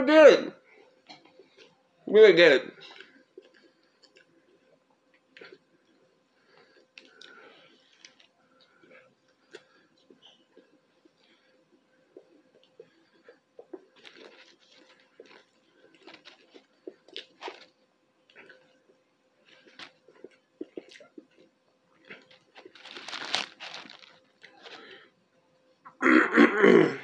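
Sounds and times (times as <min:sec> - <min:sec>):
person chewing crunchy food: 0:02.8 - 0:11.2, 0:12.1 - 0:18.7, 0:19.4 - 0:25.1.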